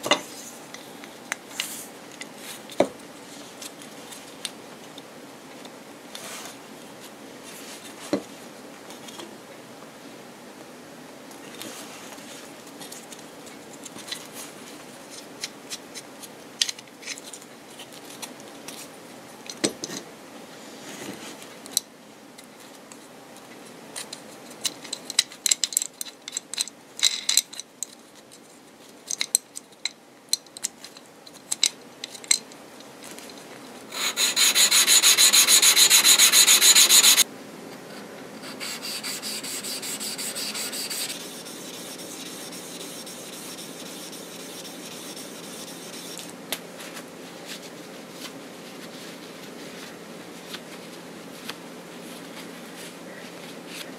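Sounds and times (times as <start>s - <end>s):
cutter rubbing on sharpening stone: 33.9s - 37.2s, 38.5s - 46.2s
loud abrasive rubbing: 33.9s - 37.2s.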